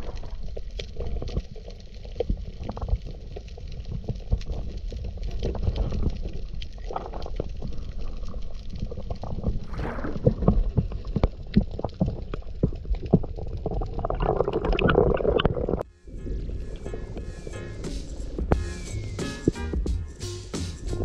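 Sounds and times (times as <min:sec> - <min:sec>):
bubbling water: 0:00.0 - 0:15.9
low underwater rumble: 0:00.0 - 0:19.9.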